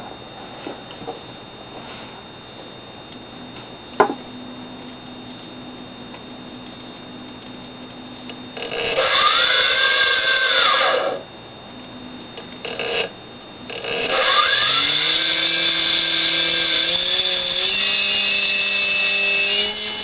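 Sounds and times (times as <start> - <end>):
low steady hum: 0.0 - 9.0, 9.8 - 14.1
small electric motor whirring: 8.3 - 11.3, 12.6 - 20.0.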